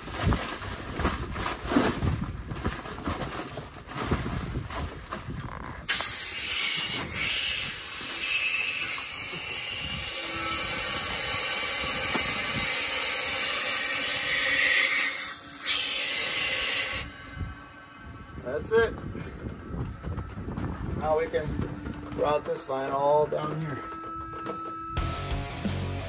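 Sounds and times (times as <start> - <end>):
compressed air hissing: 5.8 - 17.3.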